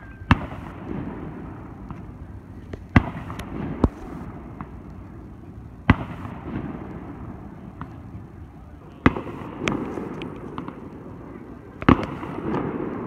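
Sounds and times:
fireworks bangs: 0:00.0 - 0:13.0
low rolling rumble: 0:00.6 - 0:13.0
faint firework pops: 0:01.8 - 0:05.0, 0:05.8 - 0:07.1, 0:07.7 - 0:08.0, 0:09.0 - 0:11.0, 0:11.8 - 0:13.0.

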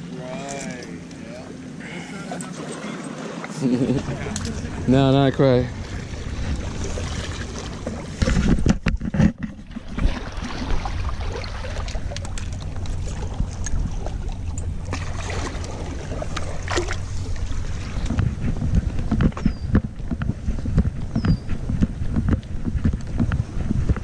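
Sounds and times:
waves lapping against rocks: 0:02.2 - 0:20.3
low wind rumble on microphone: 0:03.7 - 0:24.0
knocks and clatters: 0:08.2 - 0:09.8.

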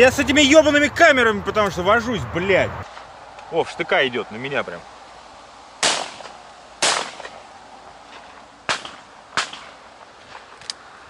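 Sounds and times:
shotgun shots: 0:05.8 - 0:07.4, 0:08.7 - 0:09.8.

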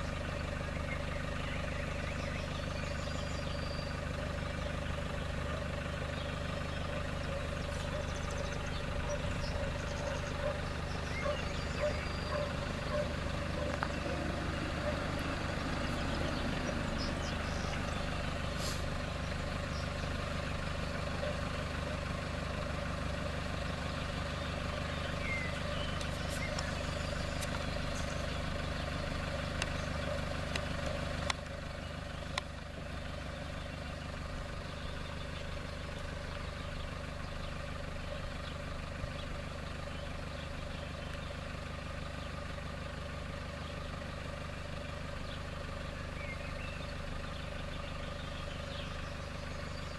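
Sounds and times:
car engine idling: 0:00.0 - 0:49.9.

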